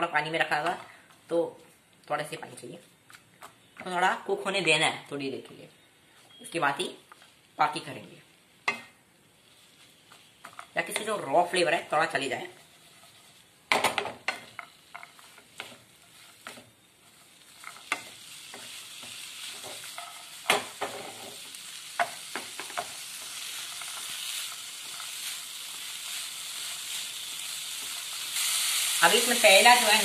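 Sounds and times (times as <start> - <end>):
frying sizzle: 7.1 - 30.0
spatula scraping frying pan: 12.3 - 13.5, 14.2 - 30.0.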